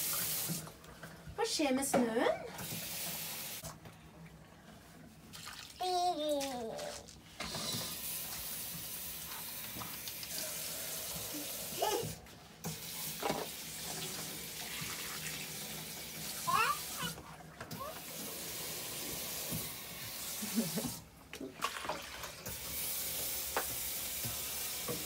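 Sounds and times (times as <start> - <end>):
tap running at sink: 0.0 - 1.2, 1.8 - 3.9, 7.4 - 25.0
child calling: 16.5 - 18.0.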